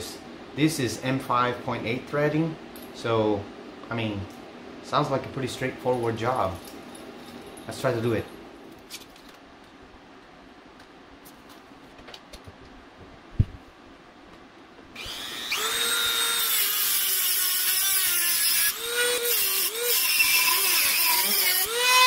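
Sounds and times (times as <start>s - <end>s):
rotary tool cutting metal: 15.0s - 22.0s.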